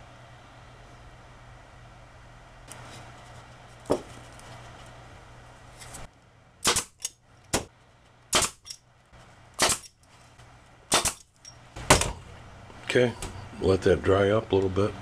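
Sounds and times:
pneumatic stapler shots: 6.6 - 7.7, 8.3 - 8.8, 9.6 - 10.0, 10.9 - 11.3.

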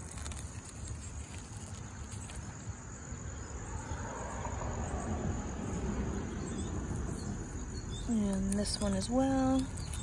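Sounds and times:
rustling and handling noise: 0.0 - 2.8
insect chorus: 0.0 - 10.0.

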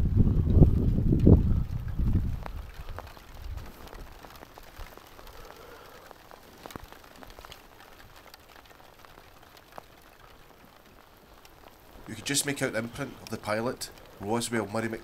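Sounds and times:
wind rush on microphone: 0.0 - 5.5
faint rain hiss: 0.0 - 15.0
raindrops ticking on camera: 0.0 - 15.0.

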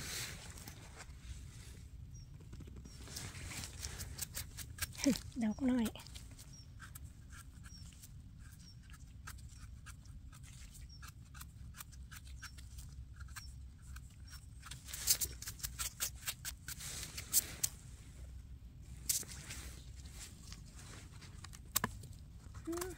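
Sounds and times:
knife scraping mushroom stem: 3.3 - 17.8.

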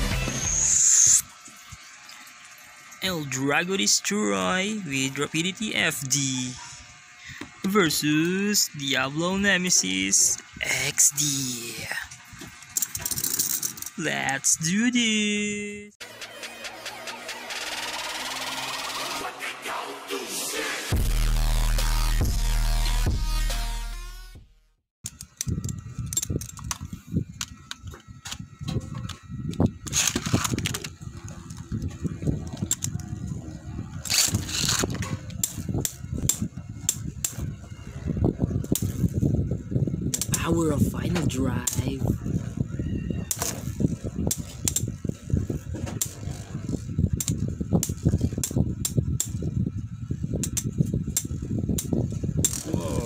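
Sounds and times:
tops spinning and rattling: 12.6 - 14.0
spinning tops clicking and clattering: 12.7 - 14.0.

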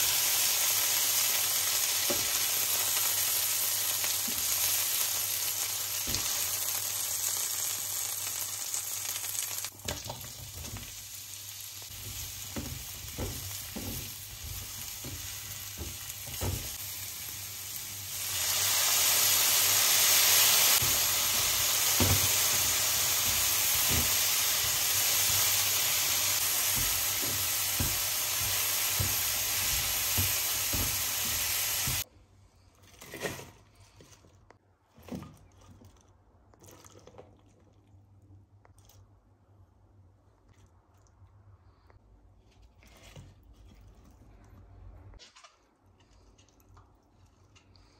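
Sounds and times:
food sizzling in a pan: 0.0 - 32.1
loud bright hiss: 15.0 - 32.0.

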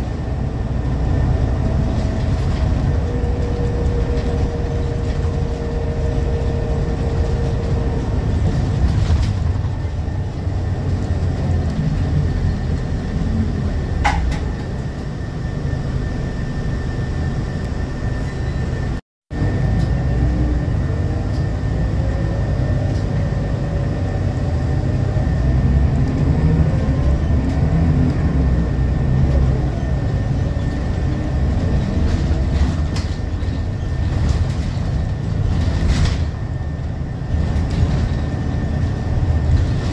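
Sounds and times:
bus body rattles: 0.0 - 14.9, 25.9 - 39.9
bus diesel engine running: 0.0 - 39.9
road rumble: 0.0 - 39.9.

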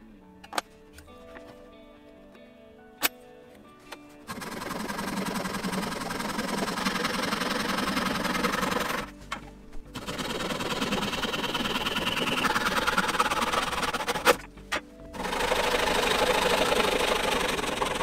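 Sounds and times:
pull saw cutting wood: 4.3 - 9.1, 10.0 - 14.5, 15.2 - 18.0.

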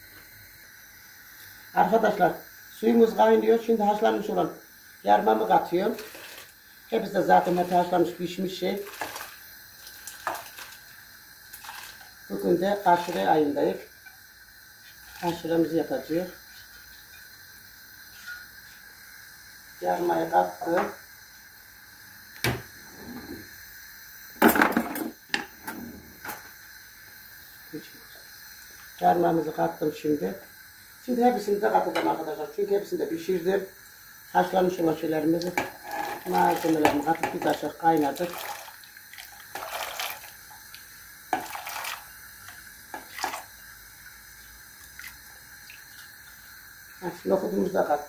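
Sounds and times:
kitchenware knocking and clinking: 24.4 - 26.4
chickpeas splashing into water: 36.2 - 40.8.

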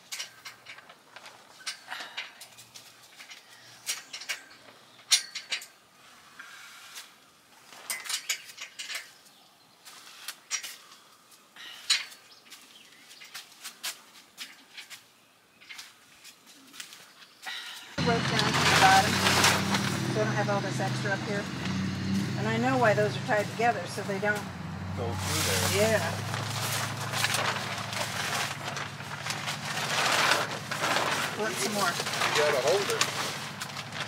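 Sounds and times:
metal tubing clinking: 1.6 - 5.8, 7.8 - 9.2.

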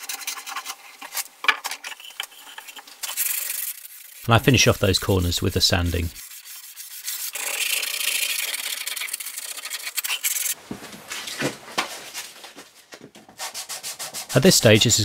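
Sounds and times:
sandpaper rubbing wood: 2.3 - 10.6, 13.3 - 15.0.

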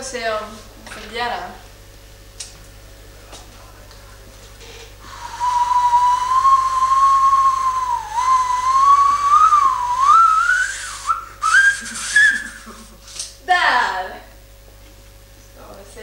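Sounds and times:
wavering whistle-like tone: 5.1 - 12.7.

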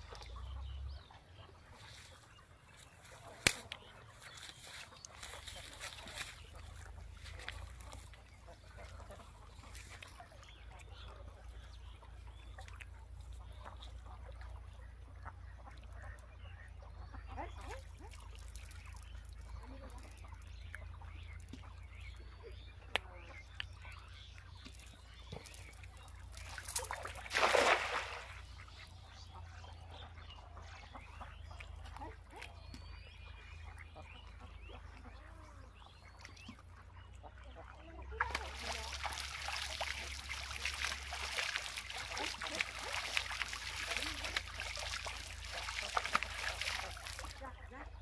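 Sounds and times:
net splashing into water: 25.4 - 28.5, 38.2 - 47.4.

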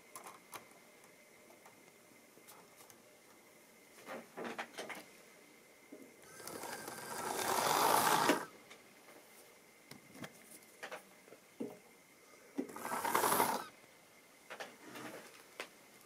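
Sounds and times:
model train motor and wheels: 6.2 - 8.5, 12.6 - 13.7.

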